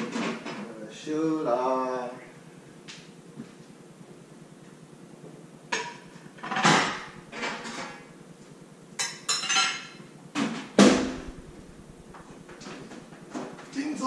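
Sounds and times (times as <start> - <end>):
kitchenware clattering and clinking: 5.8 - 8.1, 9.0 - 10.0.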